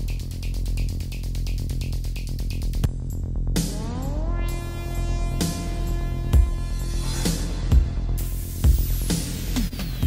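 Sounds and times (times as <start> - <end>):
deep electronic drone: 0.0 - 10.0
heavy bass hits: 2.7 - 9.0.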